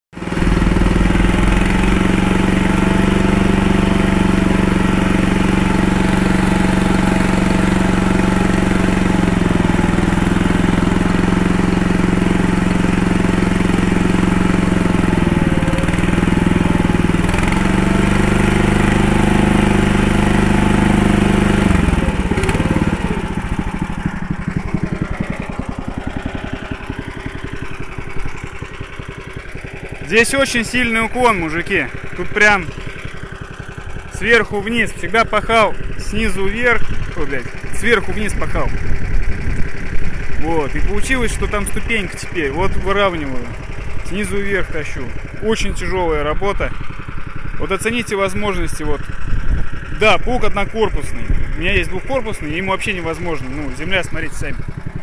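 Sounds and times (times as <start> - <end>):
tractor engine running under load: 0.2 - 55.0.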